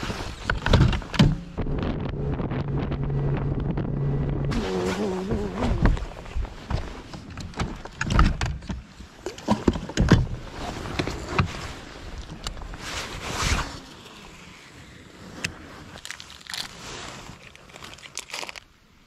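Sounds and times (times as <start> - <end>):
boat motor humming: 1.3 - 6.6.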